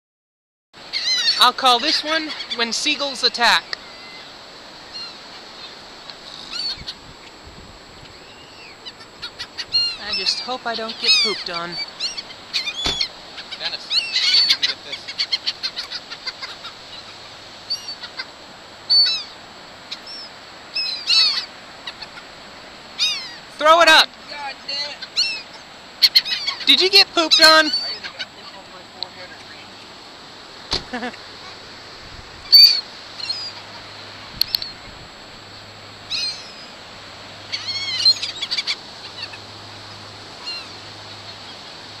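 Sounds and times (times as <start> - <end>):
background hiss: 0.8 - 42.0
gulls calling: 0.8 - 42.0.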